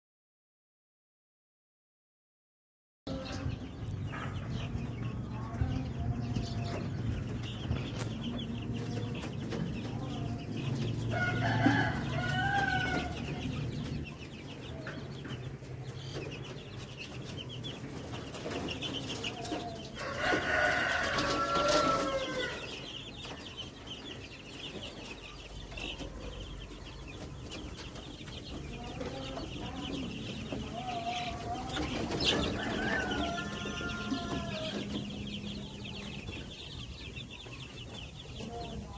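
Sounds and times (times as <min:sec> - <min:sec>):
chicks peeping and chirping: 0:03.1 - 0:38.9.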